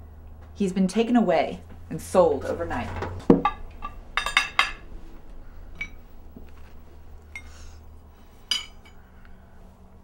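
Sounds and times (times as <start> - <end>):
crockery and cutlery clinking: 2.7 - 4.9, 5.8 - 6.0, 8.4 - 9.0.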